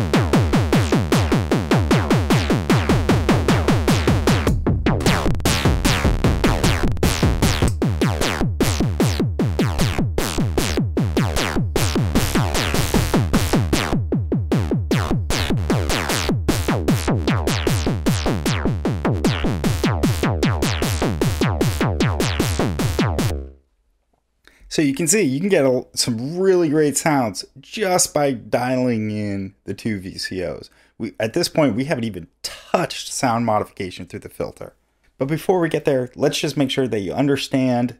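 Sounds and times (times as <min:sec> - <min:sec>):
deep bass: 0:00.0 - 0:23.6
synthesizer drum hits: 0:00.0 - 0:23.6.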